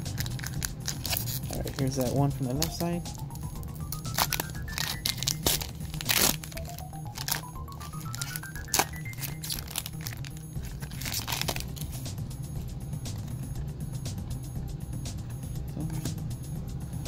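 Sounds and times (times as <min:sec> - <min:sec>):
foil wrapper crinkling and tearing: 0:00.0 - 0:02.9, 0:03.8 - 0:12.1
background music: 0:00.0 - 0:17.0.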